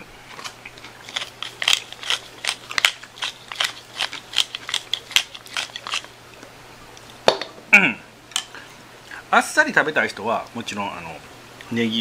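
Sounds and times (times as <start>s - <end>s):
pepper mill grinding: 0.3s - 6.2s.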